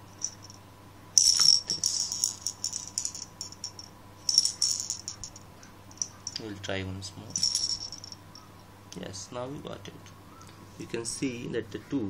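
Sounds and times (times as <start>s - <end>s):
balls rattling in plastic case: 0.0s - 0.6s, 1.2s - 6.4s, 7.3s - 8.4s.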